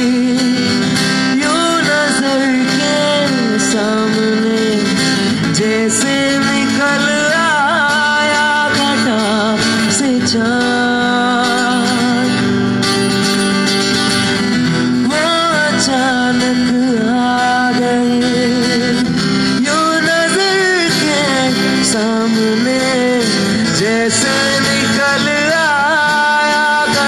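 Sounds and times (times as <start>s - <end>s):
man singing into a microphone: 0.0s - 13.7s, 14.4s - 27.0s
strummed acoustic guitar: 0.0s - 27.0s.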